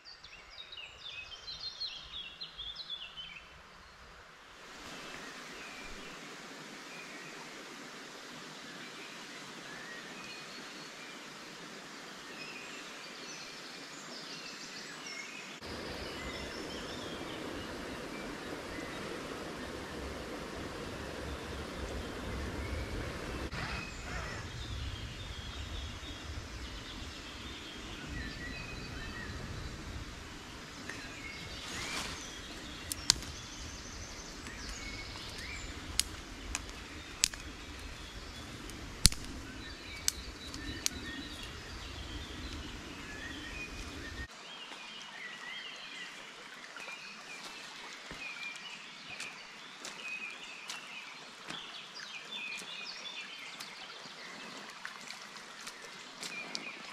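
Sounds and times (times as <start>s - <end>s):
woodland birds singing: 0.0s - 4.1s, 12.0s - 46.2s, 46.9s - 54.6s
sharp cracks: 32.8s - 33.5s, 34.4s - 38.1s, 38.7s - 41.6s.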